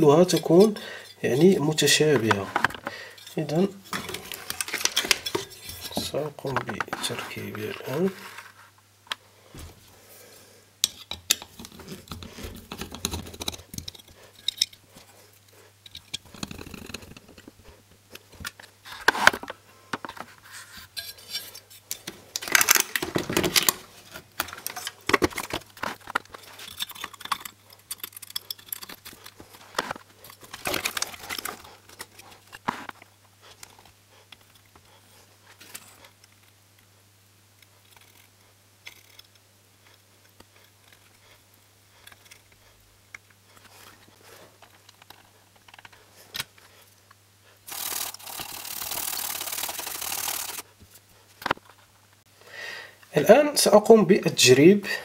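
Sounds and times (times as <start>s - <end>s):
metallic clicks and rattles of handling: 2.1s - 8.0s, 10.8s - 14.8s, 20.9s - 33.0s, 47.7s - 50.6s.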